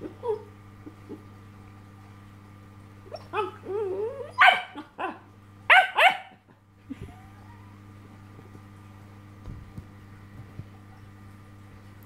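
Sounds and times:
puppy barking: 3.1s - 3.6s, 4.2s - 6.4s.

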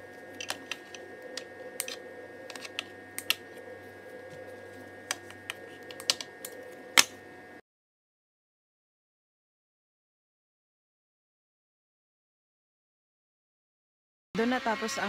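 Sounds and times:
steady background hum: 0.0s - 7.6s, 14.4s - 15.0s
scissors snipping: 0.3s - 3.4s, 5.1s - 7.2s.

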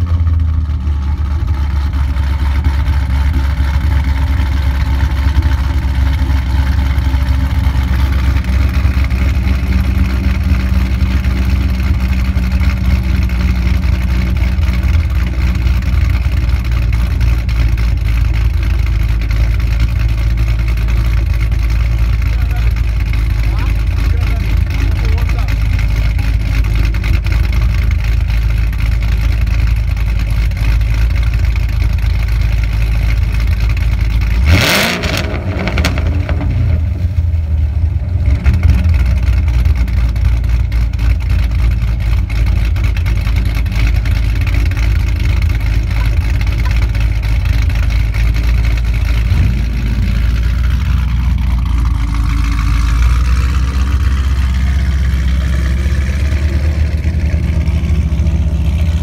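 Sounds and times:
car engine idling: 0.0s - 59.0s
engine revving: 34.3s - 37.4s, 42.8s - 59.0s.

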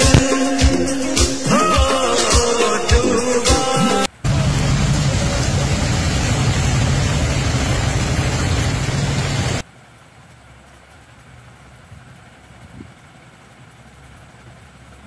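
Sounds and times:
heavy rain pouring: 4.0s - 15.0s.

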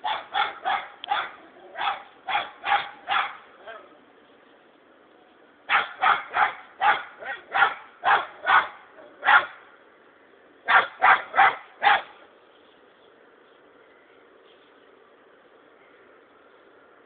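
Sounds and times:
dog barking sharply: 0.0s - 3.4s, 5.7s - 9.6s, 10.7s - 12.1s.

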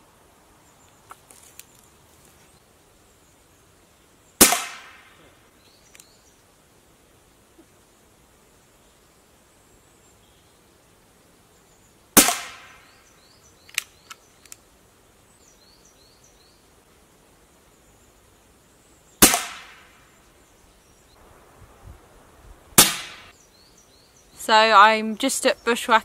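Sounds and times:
air rifle shots: 4.4s - 5.2s, 12.2s - 12.8s, 19.2s - 20.0s, 22.8s - 23.3s
light clicks: 13.6s - 14.6s.

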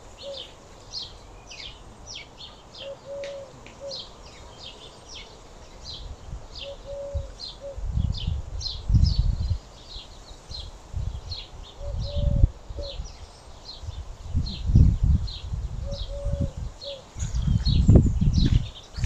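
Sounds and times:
dove cooing: 0.0s - 0.7s, 1.6s - 4.4s, 6.6s - 8.0s, 11.8s - 13.0s, 15.8s - 17.8s
small songbirds chirping: 0.0s - 19.0s.

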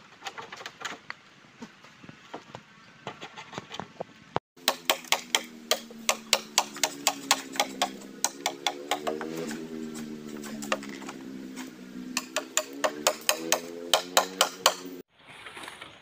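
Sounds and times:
knife chopping bamboo: 4.6s - 14.9s.

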